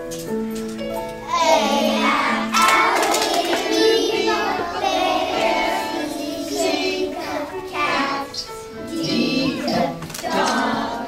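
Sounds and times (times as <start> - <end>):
backing music: 0.0 - 11.0
children singing together: 1.2 - 11.0.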